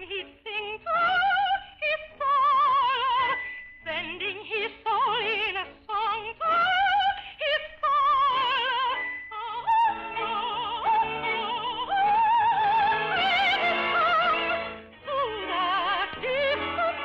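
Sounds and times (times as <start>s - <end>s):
soprano singing opera: 0.0s - 17.0s
orchestra playing: 8.0s - 17.0s.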